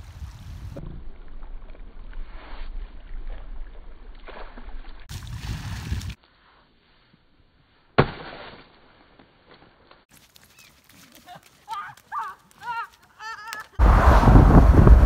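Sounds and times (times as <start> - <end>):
wind on the microphone: 0.0 - 3.8, 13.8 - 15.0
foot slapping kelp: 9.5 - 13.8.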